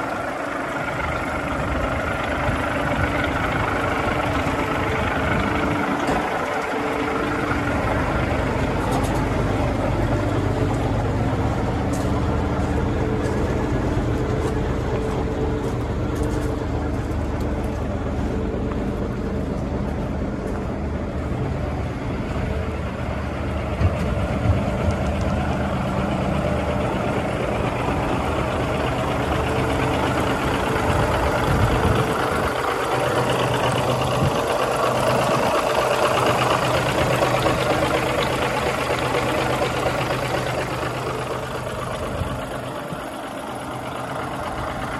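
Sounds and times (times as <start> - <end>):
diesel engine idling: 0.0 - 44.9.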